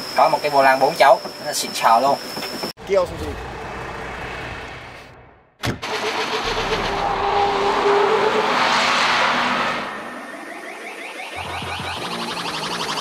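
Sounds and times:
truck engine under load: 2.8s - 8.1s
tyres skidding: 2.8s - 10.2s.

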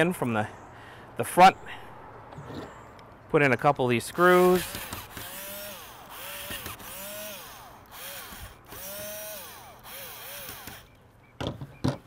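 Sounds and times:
power screwdriver bursts: 4.3s - 10.9s.

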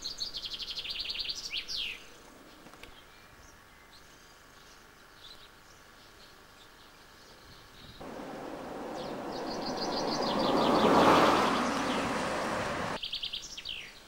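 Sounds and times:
small birds chirping: 0.0s - 14.0s
vehicle passing close by: 8.0s - 13.0s.

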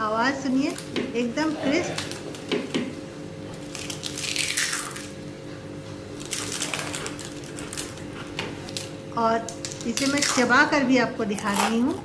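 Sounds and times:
crisp dosa crackling and crunching: 3.7s - 5.1s.

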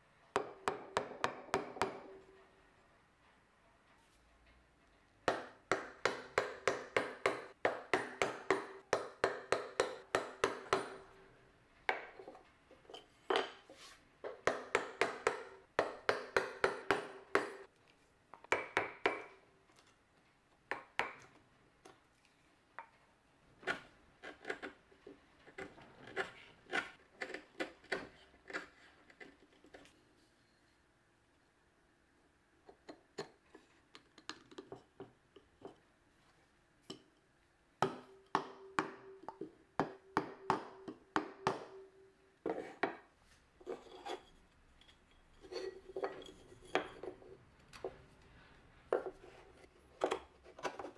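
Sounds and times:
chisel tapping wood: 5.3s - 11.0s, 14.3s - 17.7s.

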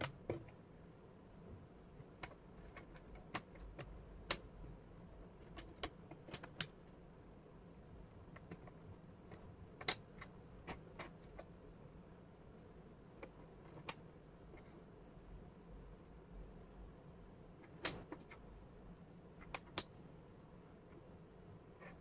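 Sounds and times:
wooden puzzle pieces clicking: 2.2s - 4.5s, 5.4s - 6.8s, 8.3s - 11.5s, 13.2s - 14.0s, 17.6s - 18.4s, 19.4s - 19.9s.

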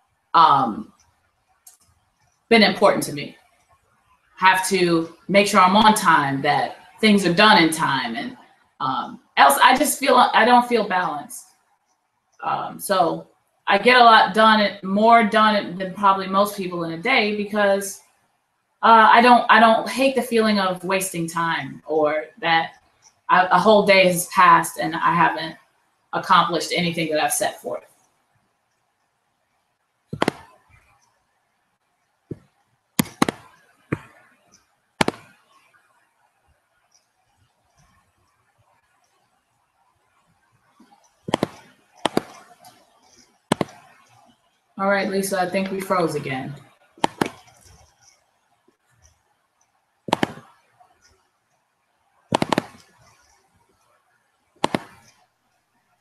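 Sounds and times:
crackly popping glitches: 28.8s - 36.2s, 40.2s - 49.3s, 50.1s - 51.3s, 52.3s - 53.5s, 54.6s - 55.2s
sharp knocks: 30.2s - 30.4s, 32.3s - 34.2s, 35.0s - 35.3s, 41.3s - 42.4s, 47.0s - 47.5s, 50.1s - 50.5s, 52.3s - 52.8s.

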